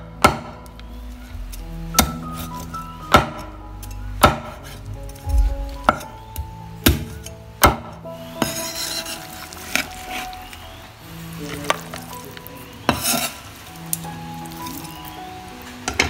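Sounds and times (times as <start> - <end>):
cleaver chopping on wooden board: 3.1 - 3.5, 4.2 - 4.6, 6.9 - 8.6.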